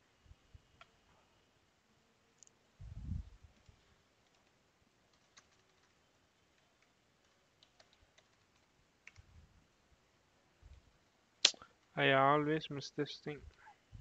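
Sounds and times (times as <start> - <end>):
keyboard typing: 4.2 - 9.3.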